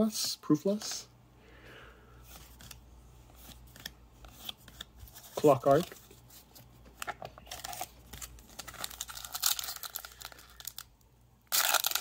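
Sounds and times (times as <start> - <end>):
foil pack crinkling: 7.0 - 10.9, 11.5 - 12.0
foil wrapper ripping: 7.4 - 10.9, 11.5 - 12.0.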